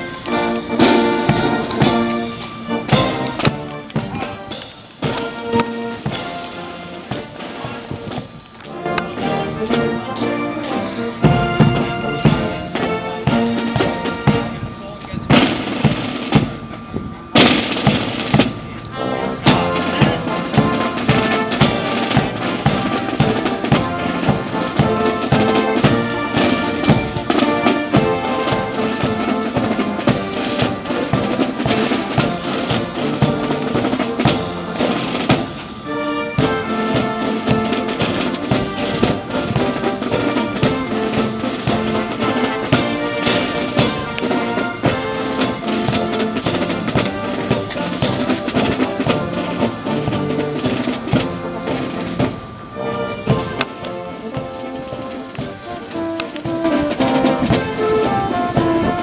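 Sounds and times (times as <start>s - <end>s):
brass band playing a march: 0.0s - 59.0s
snare and bass drums: 0.0s - 59.0s.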